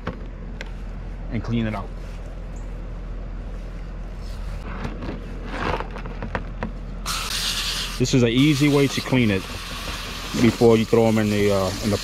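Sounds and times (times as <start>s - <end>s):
hose spraying water: 7.1s - 12.0s.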